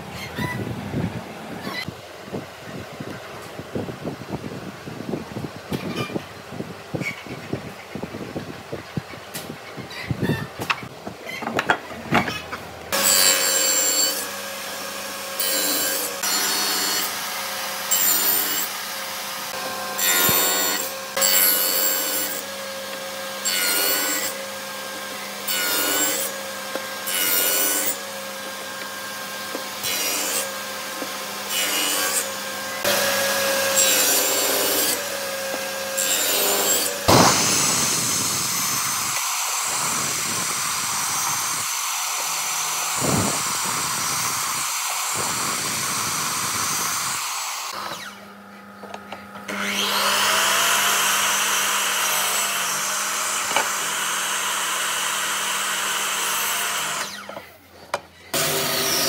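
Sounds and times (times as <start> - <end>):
table saw cutting wood: 12.1 - 57.4, 58.3 - 59.0
miter saw running: 12.9 - 48.4.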